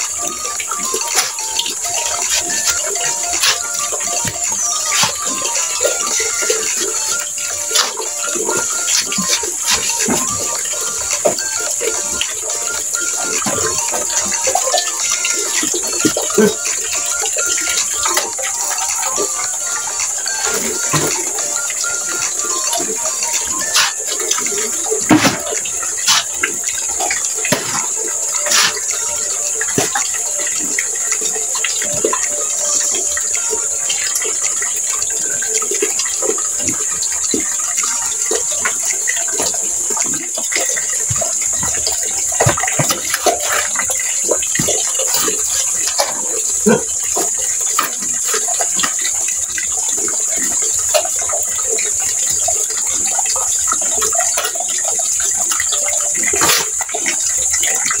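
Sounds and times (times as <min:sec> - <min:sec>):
water running into bucket: 0:00.0 - 0:58.0
tools scraping wet mortar: 0:00.3 - 0:11.5, 0:23.1 - 0:29.1, 0:40.8 - 0:46.9, 0:56.3 - 0:56.8.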